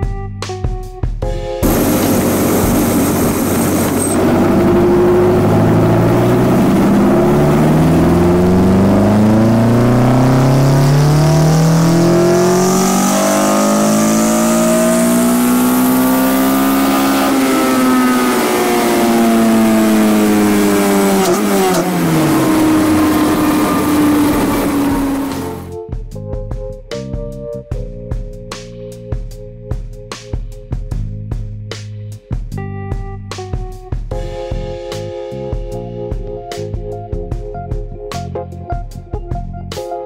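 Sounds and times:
car engine revving: 0:01.6 - 0:25.8.

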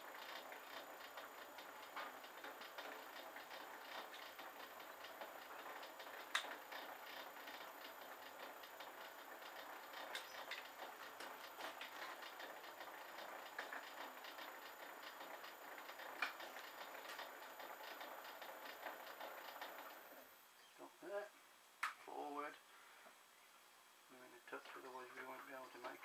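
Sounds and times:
lathe carriage ticking clatter: 0:00.0 - 0:20.2.

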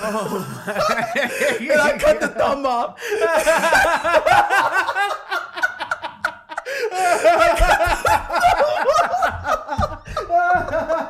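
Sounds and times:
men laughing: 0:00.0 - 0:11.0
low thuds: 0:07.4 - 0:11.0.

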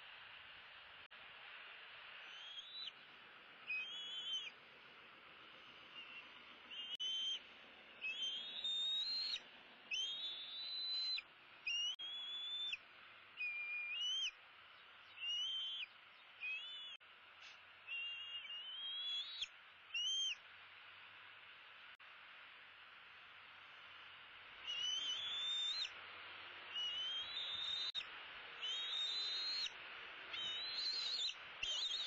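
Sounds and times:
eagle whistled cries: 0:02.3 - 0:02.9, 0:03.7 - 0:04.5, 0:06.0 - 0:07.4, 0:08.0 - 0:12.8, 0:13.4 - 0:14.4, 0:15.2 - 0:17.0, 0:17.9 - 0:20.4, 0:24.6 - 0:25.9, 0:26.7 - 0:28.0, 0:28.6 - 0:32.0.

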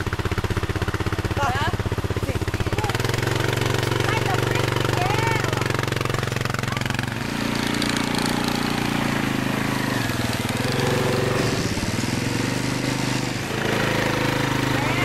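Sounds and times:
quad bike engine running: 0:00.0 - 0:15.0.

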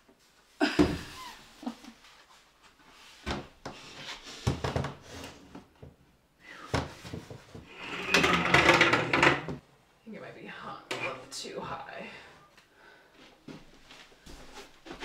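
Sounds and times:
frame scraping on wooden wall: 0:07.6 - 0:09.6.

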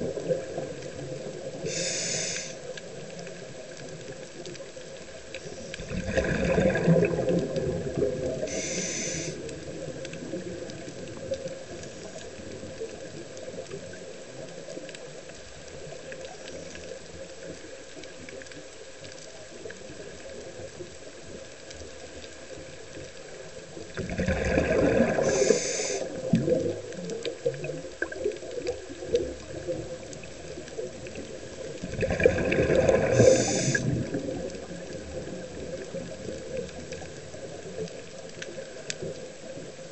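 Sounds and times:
exhaled bubbles hissing: 0:00.0 - 0:04.2, 0:05.0 - 0:13.9, 0:23.7 - 0:37.8
faint water noise: 0:00.0 - 0:39.9
diver breathing through regulator: 0:01.6 - 0:02.6, 0:08.4 - 0:09.4, 0:24.9 - 0:26.2, 0:32.8 - 0:34.0.

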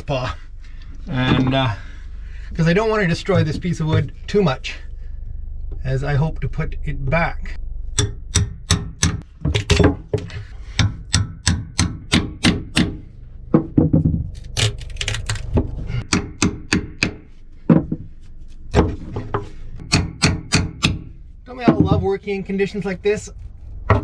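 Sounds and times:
hammer striking metal nail puller: 0:08.0 - 0:09.9, 0:10.8 - 0:13.0.

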